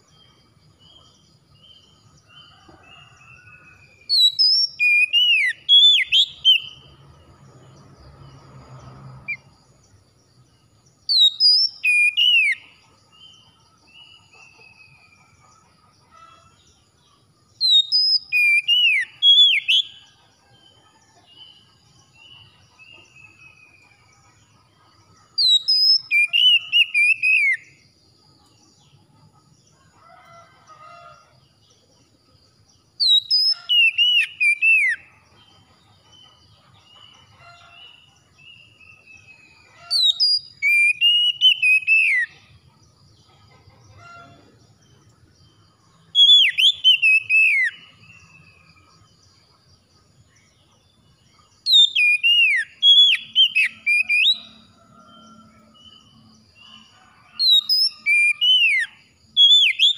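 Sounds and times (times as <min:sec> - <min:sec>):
bird singing whistled phrases: 0:04.1 - 0:06.8, 0:11.1 - 0:12.7, 0:17.6 - 0:19.9, 0:25.4 - 0:27.6, 0:40.0 - 0:42.2, 0:51.7 - 0:54.5, 0:57.6 - 0:59.9.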